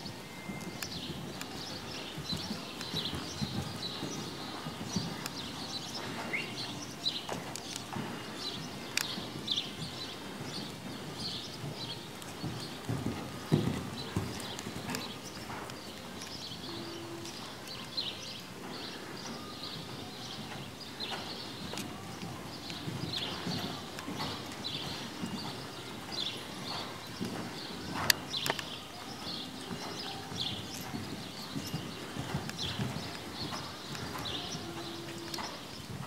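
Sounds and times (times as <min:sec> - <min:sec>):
muffled hoofbeats on sand: 0:00.0 - 0:36.0.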